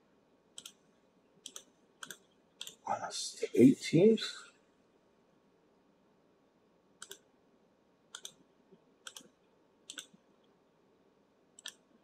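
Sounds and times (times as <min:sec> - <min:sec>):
computer mouse clicks: 0:00.5 - 0:00.8, 0:01.4 - 0:02.8, 0:07.0 - 0:07.3, 0:08.1 - 0:10.6, 0:11.6 - 0:12.0.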